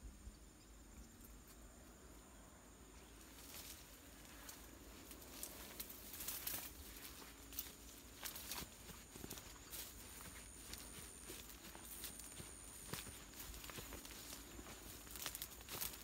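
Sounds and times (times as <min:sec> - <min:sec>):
leaves rustling and swishing: 0:03.2 - 0:16.0
footsteps: 0:03.3 - 0:16.0.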